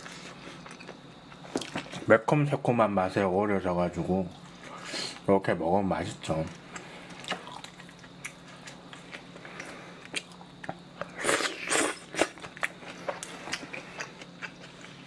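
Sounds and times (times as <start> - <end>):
low fan hum: 0.0 - 15.0
wet chewing and mouth clicks: 6.7 - 15.0.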